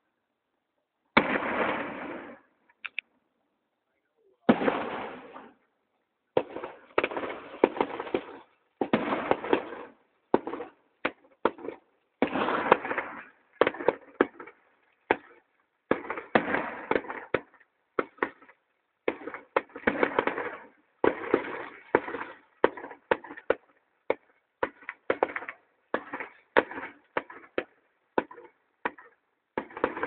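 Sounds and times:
fireworks crackling: 1.2 - 3.0, 4.4 - 5.6, 6.4 - 18.5, 19.1 - 23.7.

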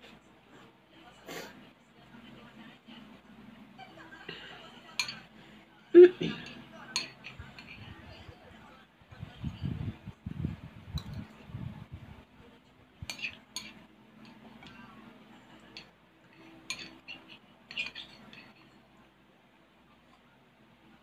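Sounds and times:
metal spoon clinking ceramic bowl: 4.9 - 5.2, 6.4 - 7.8, 13.0 - 14.8, 15.6 - 18.8.

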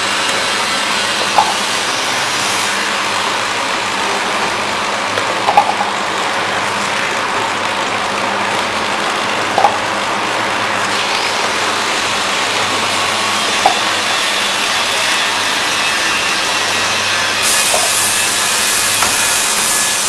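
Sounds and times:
machine hiss and whir: 0.0 - 20.0
sharp machine clack: 10.9 - 20.0.

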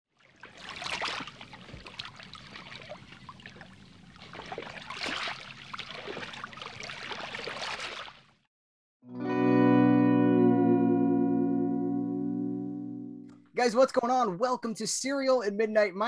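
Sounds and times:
water trickling and splashing: 0.1 - 8.5.

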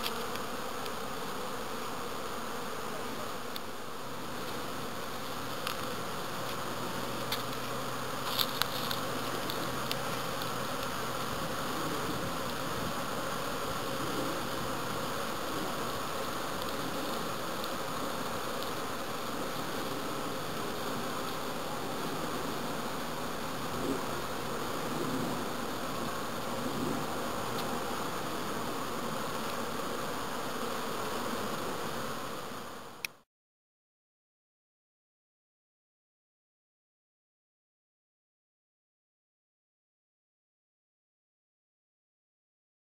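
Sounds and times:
honeybees buzzing: 0.0 - 33.2.

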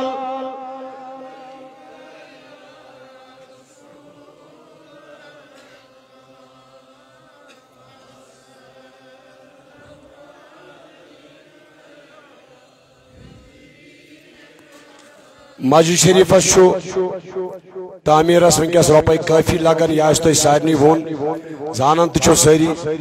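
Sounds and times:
men chanting in unison: 0.8 - 17.0.

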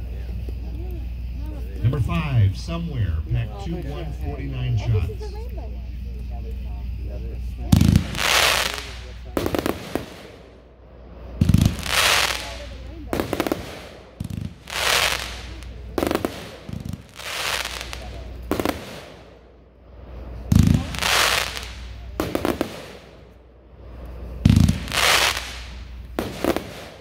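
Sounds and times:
hissing firework stars: 6.8 - 27.0
firework bursts: 6.9 - 27.0
firework launch thumps: 11.4 - 19.4, 24.4 - 27.0.

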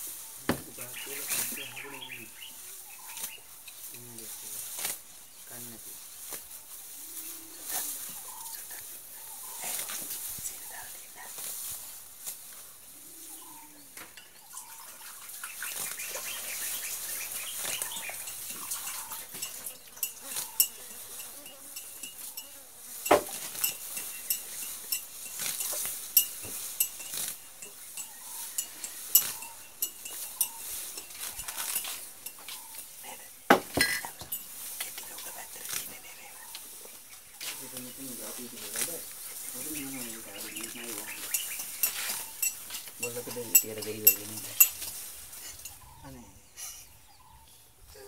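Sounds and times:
elephant tearing up grass: 4.3 - 5.2, 6.0 - 8.3, 11.3 - 12.8, 15.7 - 32.9, 37.4 - 43.0
steady high hiss: 15.2 - 45.8.

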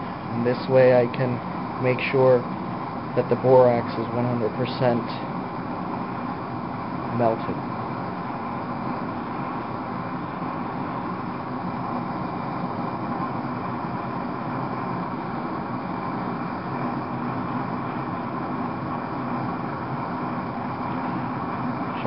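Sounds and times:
blow torch flame burning: 0.0 - 22.0.

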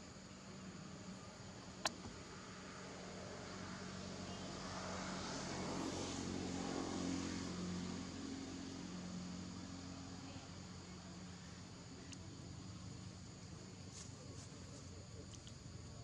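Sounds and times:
distant engine passing by: 0.7 - 11.9.

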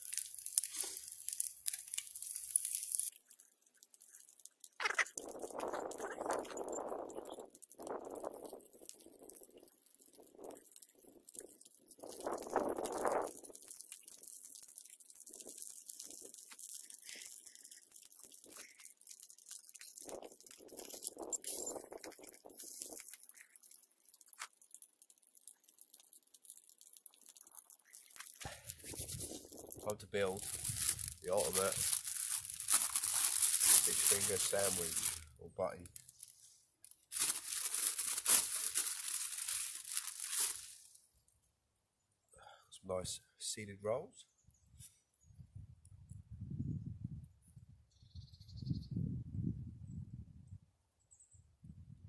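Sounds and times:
fish sizzling in hot oil: 0.0 - 5.6, 6.9 - 29.8
plastic bag crinkling: 0.0 - 41.0.

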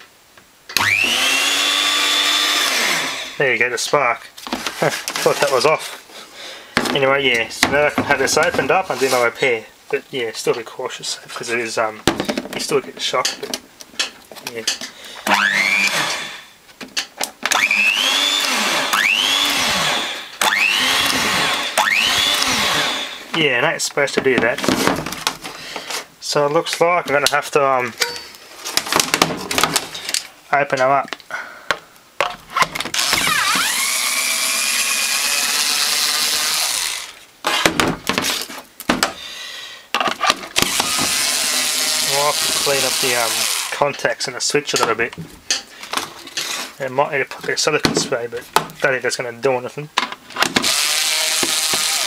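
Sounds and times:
hand mixer motor whining: 0.8 - 3.4, 15.3 - 16.5, 17.5 - 23.3, 33.0 - 37.2, 40.6 - 43.8, 50.6 - 52.0
clicks and knocks of handling: 12.0 - 15.0.

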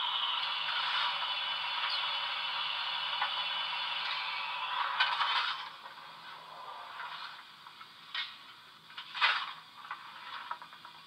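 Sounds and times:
steam hiss from small speaker: 0.0 - 5.2.

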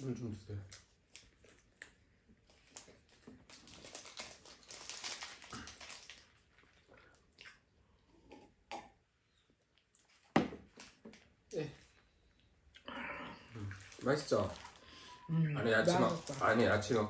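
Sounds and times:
chewing: 0.7 - 8.5.

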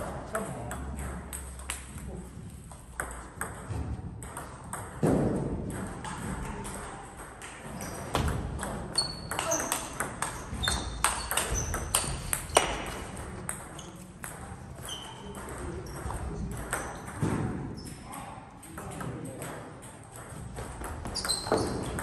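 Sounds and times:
table tennis ball hits: 2.7 - 18.0, 18.7 - 22.0
sneakers squeaking on floor: 7.7 - 18.1, 20.7 - 22.0.

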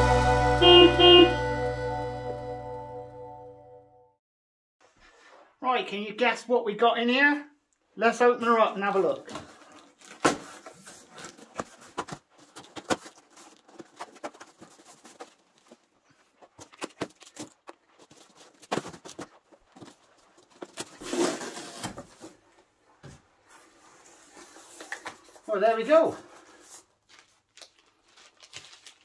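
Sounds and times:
tape and cardboard crackling: 9.3 - 25.5, 26.4 - 29.0
tape tearing rasp: 20.4 - 22.4.

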